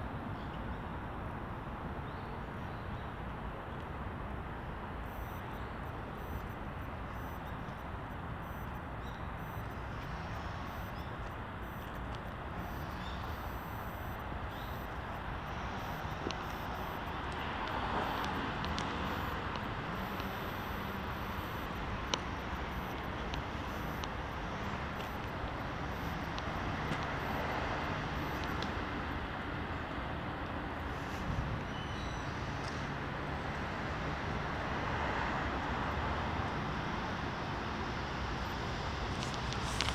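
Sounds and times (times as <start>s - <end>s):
distant road traffic hum: 0.0s - 39.9s
faint ticks: 9.4s - 28.8s.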